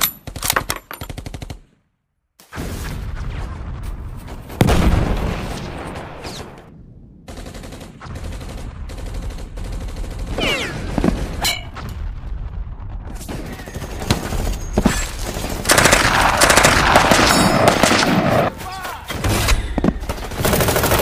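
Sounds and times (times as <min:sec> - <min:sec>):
rapid gunfire: 0:07.3 - 0:11.4, 0:15.2 - 0:18.5, 0:20.0 - 0:21.0.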